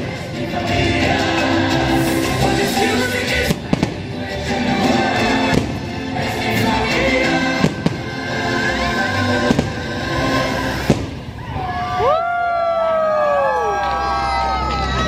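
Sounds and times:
show music soundtrack: 0:00.0 - 0:11.1
fireworks bangs: 0:03.3 - 0:11.7.

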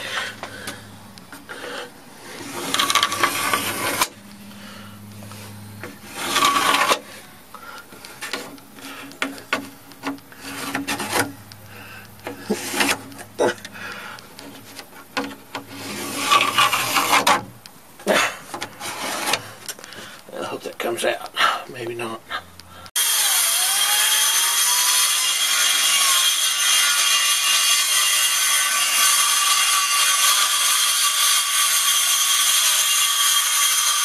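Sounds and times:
wood being scraped and rubbed: 0:00.0 - 0:20.6.

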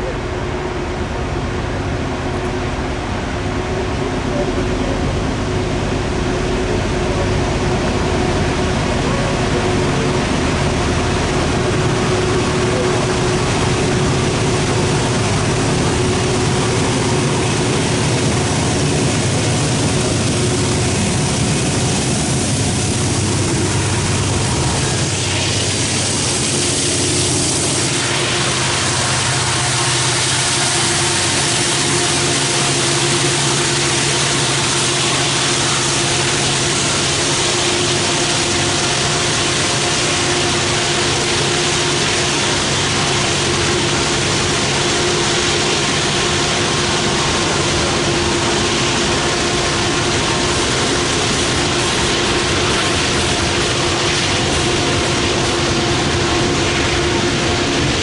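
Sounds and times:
diesel locomotives hauling train: 0:00.0 - 0:58.0
hiss: 0:16.2 - 0:57.0.

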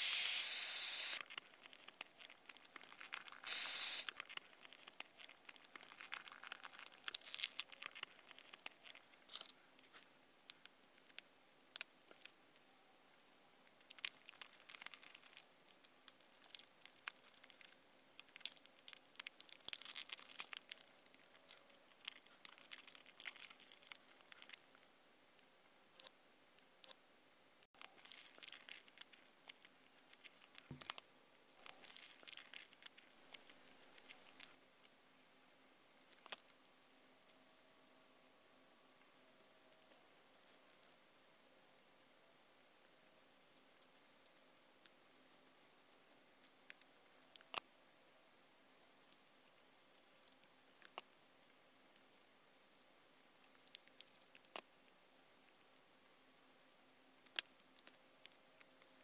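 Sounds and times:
plastic film crinkling and rustling: 0:01.0 - 0:10.0, 0:31.6 - 0:34.6.

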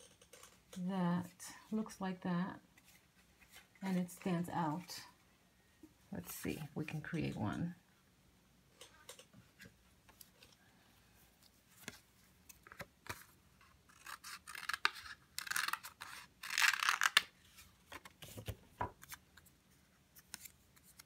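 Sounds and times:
scissors cutting paper: 0:13.9 - 0:17.2.

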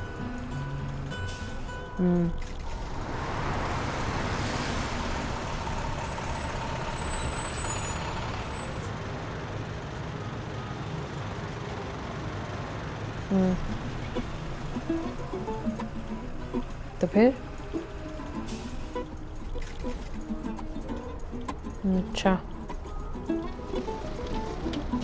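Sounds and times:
minibus engine and road noise: 0:00.0 - 0:25.0
high brake squeal: 0:04.3 - 0:08.9.

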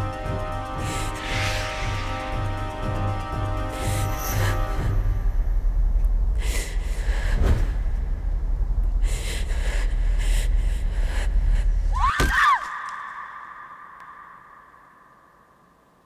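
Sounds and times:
low rumbling drone: 0:00.0 - 0:11.9.

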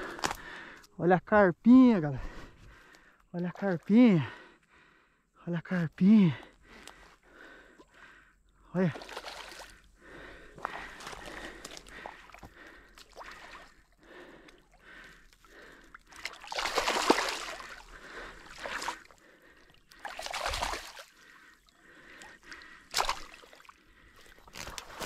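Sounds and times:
fish thrashing and splashing: 0:09.0 - 0:21.7, 0:22.4 - 0:25.0.

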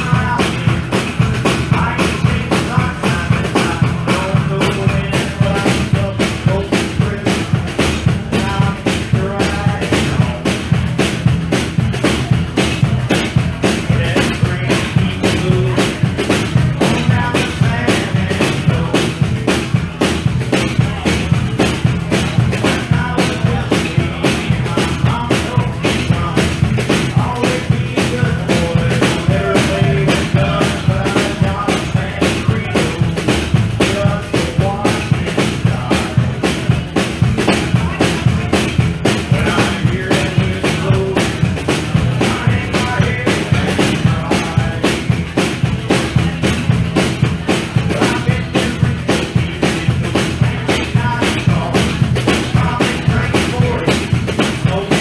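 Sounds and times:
acoustic guitar: 0:00.0 - 0:55.0
drum kit beat: 0:00.0 - 0:55.0.

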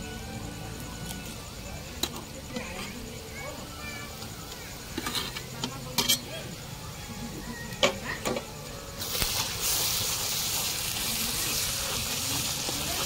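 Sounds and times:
hot oil sizzling: 0:00.0 - 0:13.0
utensils clinking against pot: 0:04.9 - 0:06.5.

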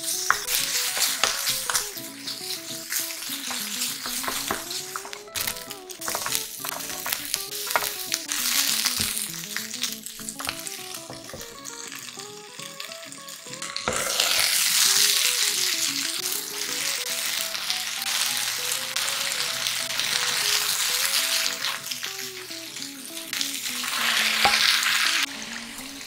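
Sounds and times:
light background music: 0:00.0 - 0:26.0
vegetables sizzling in a frying pan: 0:00.0 - 0:26.0.

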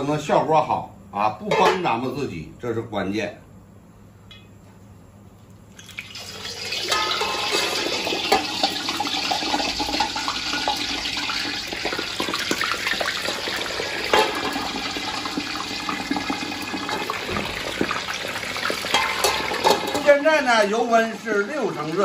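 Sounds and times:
pork sizzling in hot oil: 0:05.8 - 0:22.0.

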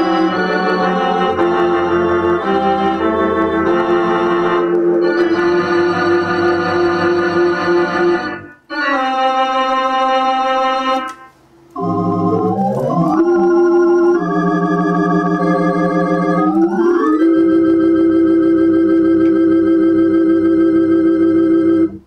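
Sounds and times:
theater organ playing chords: 0:00.0 - 0:22.0.

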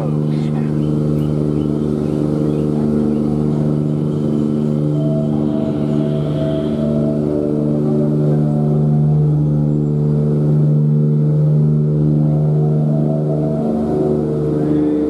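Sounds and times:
low humming drone: 0:00.0 - 0:15.0
sustained higher tones: 0:00.0 - 0:15.0.

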